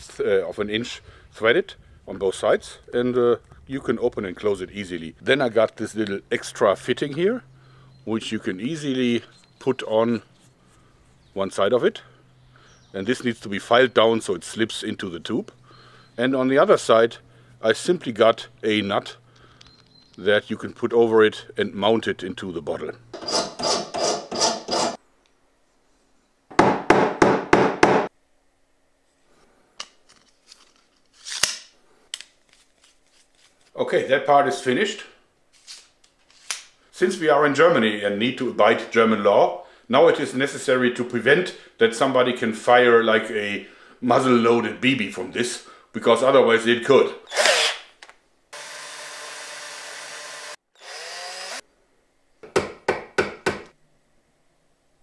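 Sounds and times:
file rasping on metal: 0:23.2 - 0:25.0
cordless drill whining: 0:47.3 - 0:47.9, 0:48.6 - 0:51.6.

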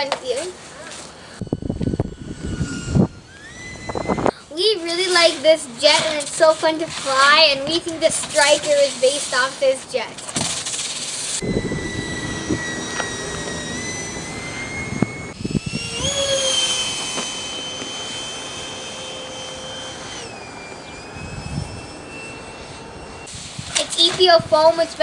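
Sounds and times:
model jet fan whining: 0:00.0 - 0:25.0.

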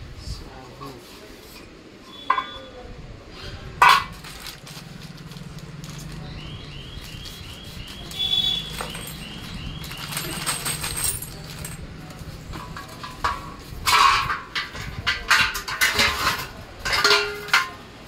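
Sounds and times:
plastic bag rustling and clinking: 0:03.8 - 0:18.0.

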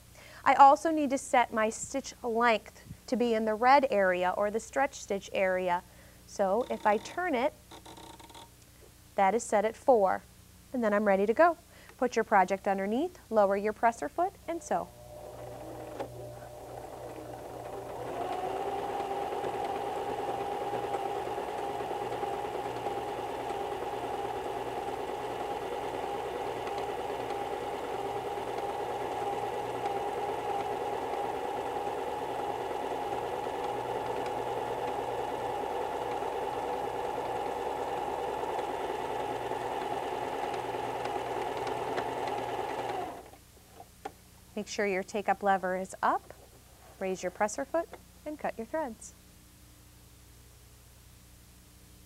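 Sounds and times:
sewing machine stitching: 0:06.5 - 0:08.4, 0:14.6 - 0:43.4.

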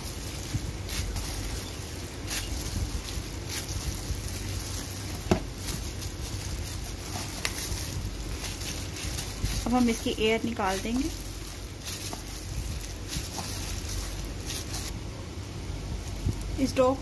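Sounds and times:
dough squishing: 0:00.0 - 0:15.0
plastic glove rustle: 0:00.0 - 0:15.0, 0:15.9 - 0:17.0
low rumble: 0:00.0 - 0:16.7
light knocks on plastic tub: 0:05.3 - 0:05.5.

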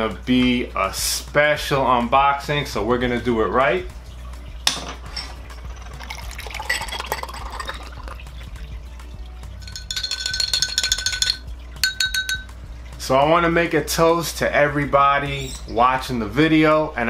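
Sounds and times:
spoon clinking against glass: 0:04.7 - 0:08.2, 0:09.6 - 0:12.6
spoon stirring in glass: 0:05.1 - 0:08.2, 0:09.5 - 0:12.6
liquid pouring into glass: 0:05.4 - 0:12.6.

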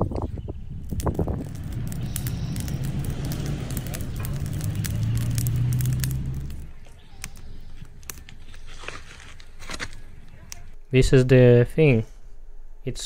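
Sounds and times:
low rumble: 0:00.0 - 0:09.0
campfire crackling and popping: 0:00.0 - 0:10.8.

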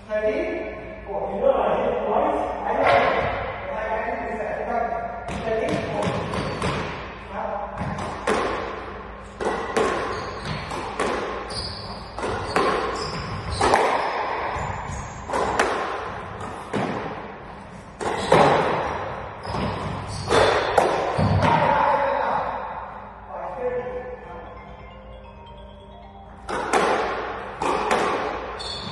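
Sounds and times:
shoes squeaking on court: 0:06.1 - 0:06.8, 0:09.4 - 0:15.5, 0:19.4 - 0:21.4, 0:27.6 - 0:28.9
squash ball knocks: 0:07.8 - 0:08.8, 0:09.4 - 0:11.5, 0:13.6 - 0:17.3, 0:19.6 - 0:21.6, 0:26.5 - 0:28.4.

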